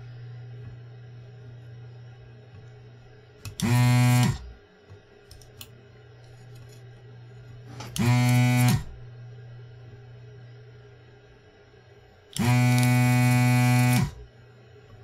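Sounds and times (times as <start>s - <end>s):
desoldering pump buzzing: 0.0s - 11.1s, 12.2s - 15.0s
low steady hum: 0.0s - 15.0s.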